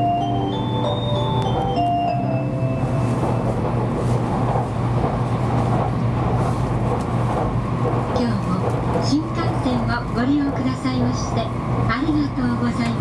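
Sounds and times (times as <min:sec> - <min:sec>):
melody: 0:00.0 - 0:03.9
train interior rumble: 0:00.0 - 0:13.0.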